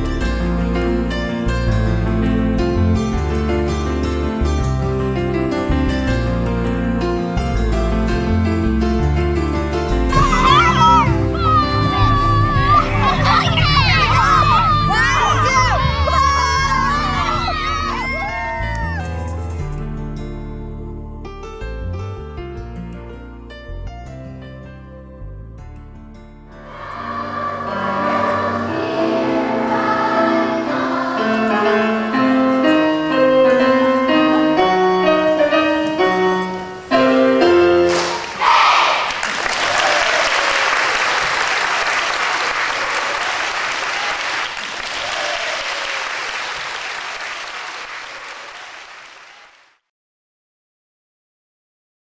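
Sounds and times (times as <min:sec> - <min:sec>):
choir singing: 0:10.1 - 0:18.7, 0:26.5 - 0:39.2
crowd clapping and cheering: 0:10.1 - 0:19.6, 0:37.9 - 0:49.9.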